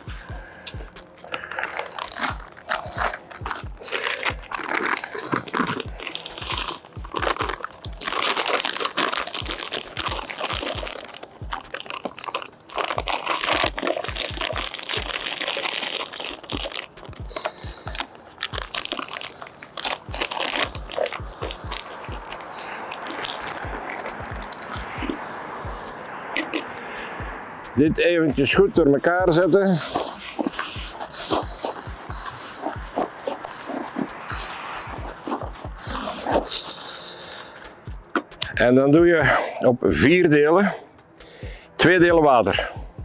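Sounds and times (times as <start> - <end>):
background music with low beat: 0.0 - 43.0
groundbait crunching in a bucket: 1.2 - 26.7, 29.3 - 37.6.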